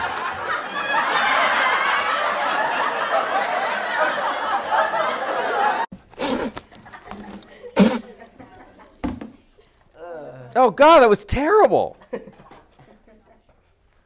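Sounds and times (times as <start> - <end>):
group of people laughing: 0.0 - 5.9, 6.6 - 9.0, 12.0 - 13.7.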